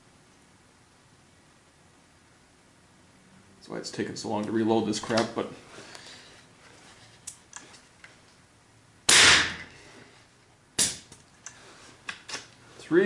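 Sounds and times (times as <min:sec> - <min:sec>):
air rifle blast: 0:09.1 - 0:09.7.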